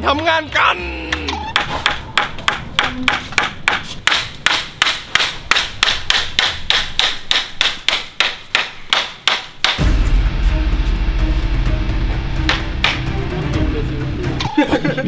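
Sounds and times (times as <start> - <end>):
hammer striking nails into wood: 1.6 - 9.8.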